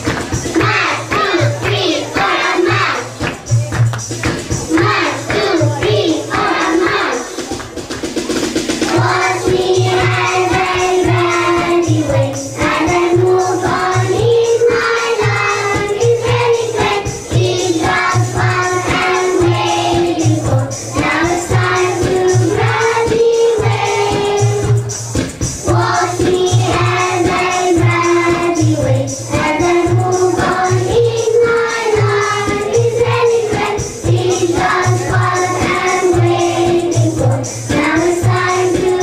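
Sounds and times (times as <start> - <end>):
children's choir singing: 0.0 - 24.9, 25.6 - 39.0
backing music with bass beat: 0.0 - 39.0.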